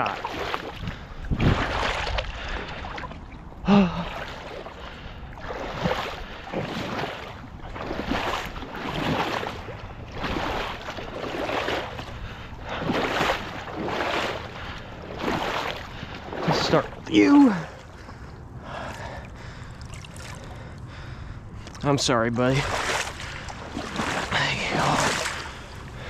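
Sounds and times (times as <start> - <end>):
water splashing and sloshing: 0.0 - 26.0
person grunting: 3.6 - 4.1.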